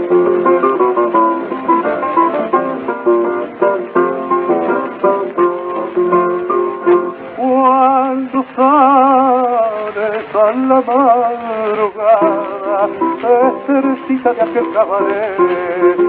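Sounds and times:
plucked guitar: 0.0 - 16.0
man singing with vibrato: 7.2 - 16.0.

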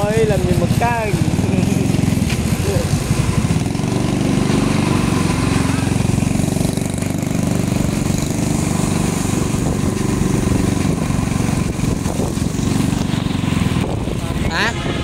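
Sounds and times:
small motorbike engine running: 0.0 - 15.0
tyres on a wet road: 0.0 - 15.0
wind rushing: 3.2 - 15.0.

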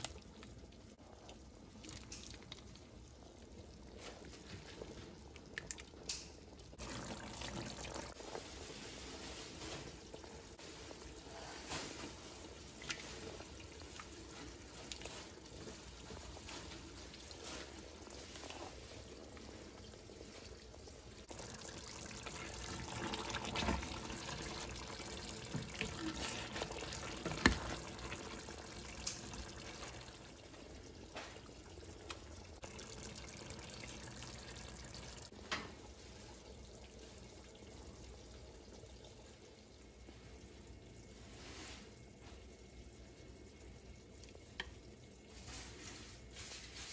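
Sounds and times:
liquid sloshing and dribbling: 0.0 - 11.0, 11.6 - 35.4.

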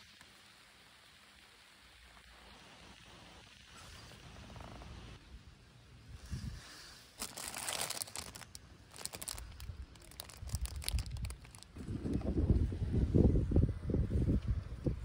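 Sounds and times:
plastic bag crinkling: 7.2 - 11.8.

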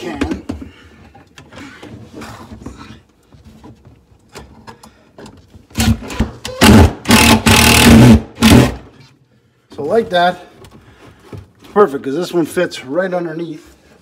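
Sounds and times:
cordless drill driving screw into wood: 5.7 - 8.9.

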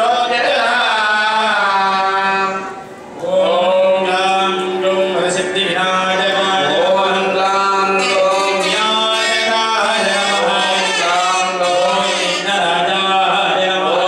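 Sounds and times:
low held drone tone: 0.0 - 14.0
men chanting: 3.3 - 14.0.

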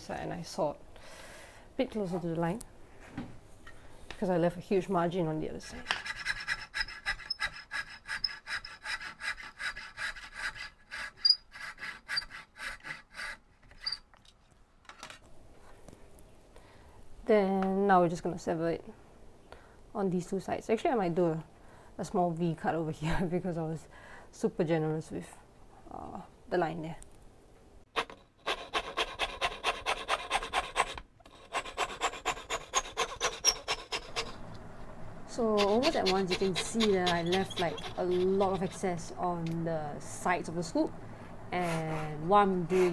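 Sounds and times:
hand saw cutting wood: 5.8 - 14.0, 27.9 - 34.4, 35.4 - 39.1, 41.6 - 42.9.

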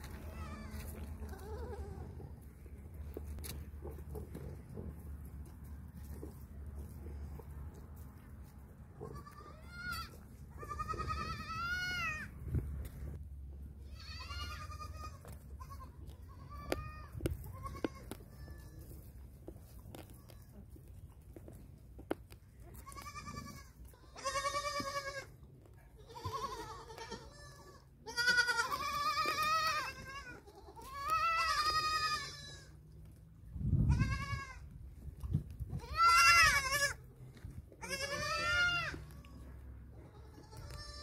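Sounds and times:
goats bleating: 0.0 - 2.4, 9.0 - 12.3, 13.8 - 19.0, 22.7 - 25.4, 26.0 - 32.8, 35.8 - 37.0, 37.8 - 41.0.

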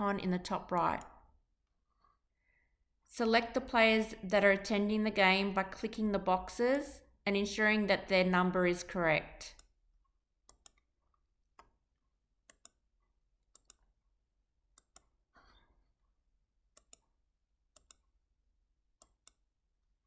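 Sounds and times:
computer mouse clicks: 0.7 - 1.2, 10.5 - 10.9, 12.5 - 12.8, 13.5 - 13.9, 14.8 - 15.2, 16.7 - 17.1, 17.8 - 18.1, 19.0 - 19.4.

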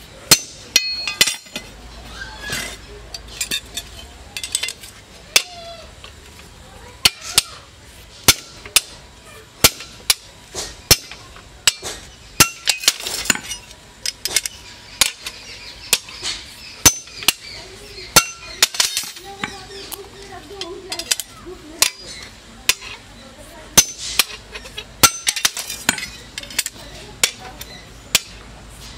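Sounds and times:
steel clinking on steel: 0.3 - 1.8, 2.5 - 5.6, 9.6 - 17.5, 18.1 - 23.1, 23.7 - 28.4.

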